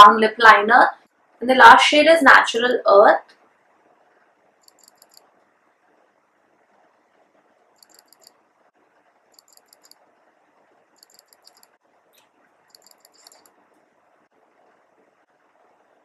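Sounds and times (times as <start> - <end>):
faint room noise: 0.0 - 16.0
rapid high-pitched clicking: 4.6 - 5.4, 7.8 - 8.4, 9.3 - 10.0, 11.0 - 11.8, 12.7 - 13.6.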